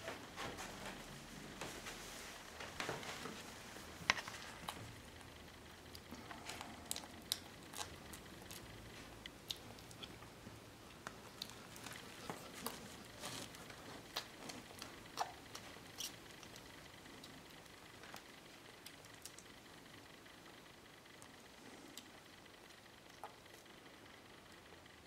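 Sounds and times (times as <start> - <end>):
wet smacking and clicking: 4.1 - 19.6
puppies suckling: 5.9 - 18.1.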